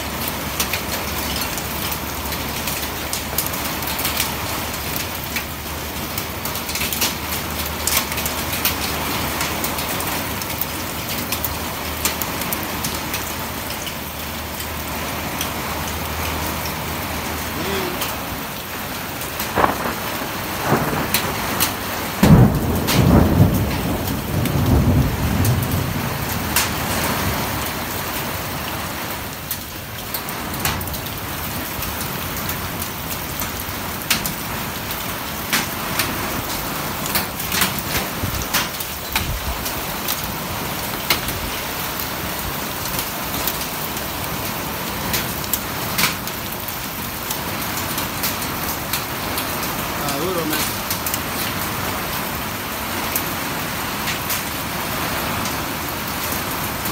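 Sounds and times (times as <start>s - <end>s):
heavy rain falling: 0.0s - 56.9s
raindrops tapping surfaces: 0.0s - 56.9s
rolling thunder: 19.2s - 27.6s.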